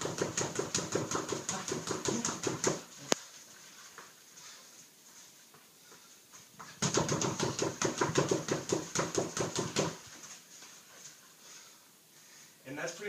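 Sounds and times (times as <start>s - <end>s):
boxing gloves hitting heavy bag: 0.0s - 2.9s, 6.8s - 10.0s.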